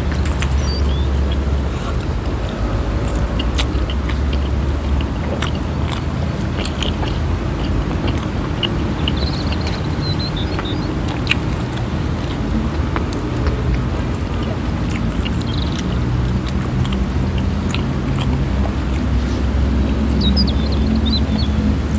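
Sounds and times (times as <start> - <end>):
low rumble: 0.0 - 14.8
close chewing and mouth sounds: 0.0 - 21.9.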